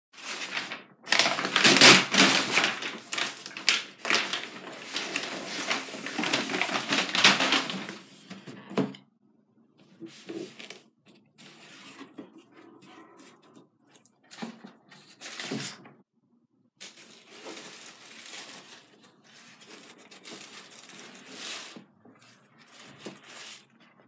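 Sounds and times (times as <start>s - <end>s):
packing paper crinkling: 0.2s - 8.1s, 16.8s - 24.0s
cardboard scraping: 0.4s - 8.9s.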